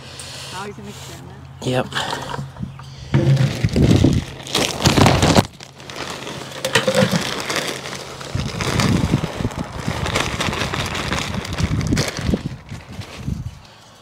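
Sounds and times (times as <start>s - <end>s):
fabric and soil rustling and crunching: 3.1s - 13.7s.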